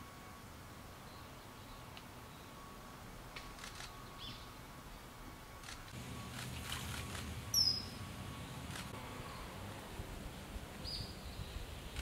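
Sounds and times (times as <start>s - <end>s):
faint bird chirp: 3.8s - 4.6s, 7.0s - 8.6s.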